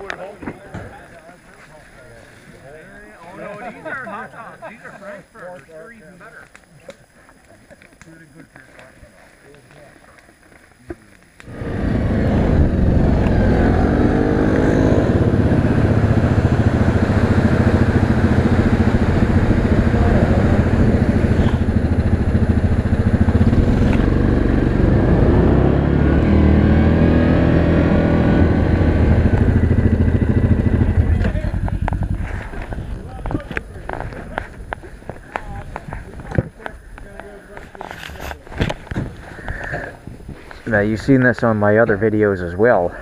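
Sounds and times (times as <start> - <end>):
atv engine revving: 11.4 - 34.7.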